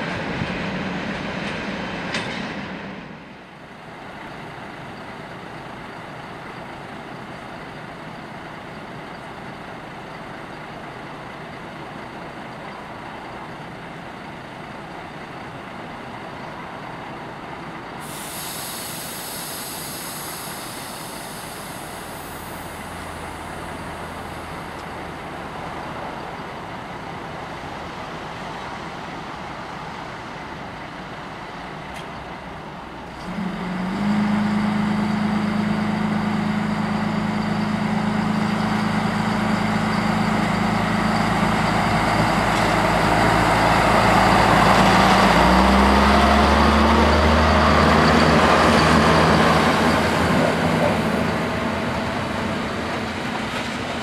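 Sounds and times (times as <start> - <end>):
diesel railcar engine idling: 0.0 - 54.0
compressed air hiss: 18.0 - 24.5.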